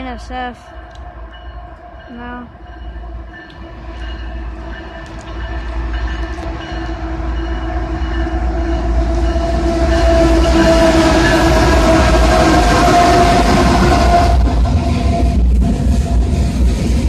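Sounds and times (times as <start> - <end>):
diesel locomotive engine rumble: 0.0 - 17.0.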